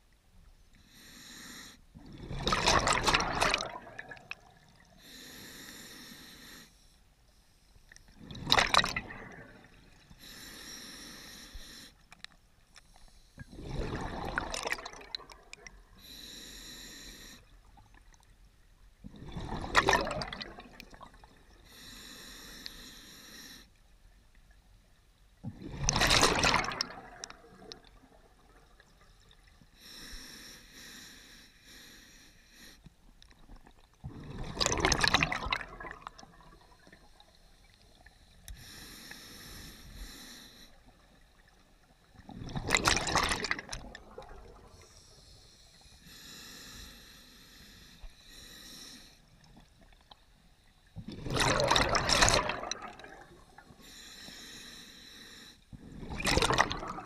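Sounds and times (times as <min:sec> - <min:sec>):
regulator inhale hissing: 0:00.8 - 0:01.9, 0:05.0 - 0:07.0, 0:10.2 - 0:12.1, 0:16.0 - 0:17.6, 0:21.6 - 0:23.8, 0:29.8 - 0:32.9, 0:38.4 - 0:41.2, 0:44.8 - 0:49.6, 0:53.6 - 0:55.7
exhaled bubbles rushing: 0:02.0 - 0:04.7, 0:08.2 - 0:09.8, 0:13.5 - 0:15.5, 0:19.1 - 0:21.3, 0:25.6 - 0:28.9, 0:34.0 - 0:36.9, 0:42.2 - 0:44.7, 0:51.0 - 0:53.5, 0:55.9 - 0:57.0.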